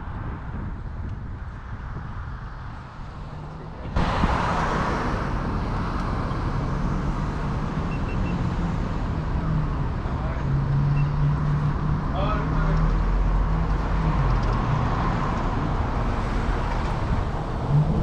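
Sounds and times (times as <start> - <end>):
vehicle engine hum: 0.0 - 18.0
wind and road noise: 0.0 - 18.0
faint high beeps: 7.9 - 8.4, 10.9 - 11.2.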